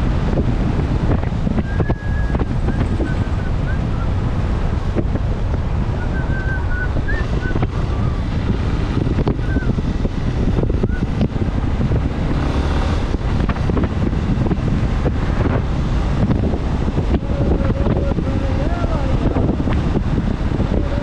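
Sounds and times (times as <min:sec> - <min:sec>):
motorcycle running: 0:00.0 - 0:21.0
wind rumbling on microphone: 0:00.0 - 0:21.0.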